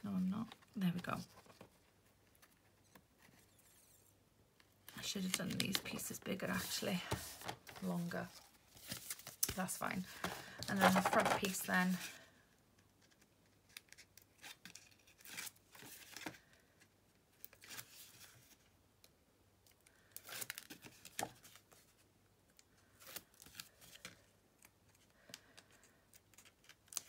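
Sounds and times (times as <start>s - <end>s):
card and ribbon rustling: 4.9s - 12.2s.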